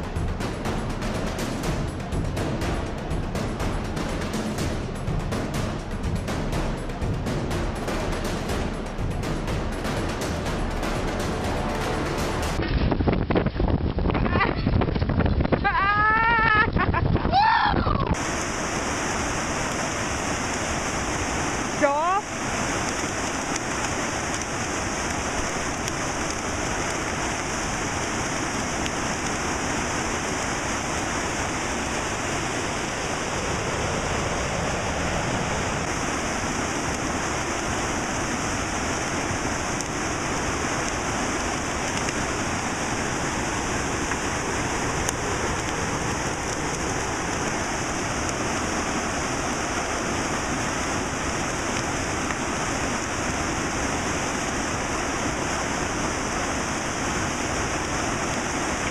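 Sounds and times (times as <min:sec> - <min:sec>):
whitewater rushing past rocks: 0:00.0 - 0:14.0, 0:17.3 - 0:58.9.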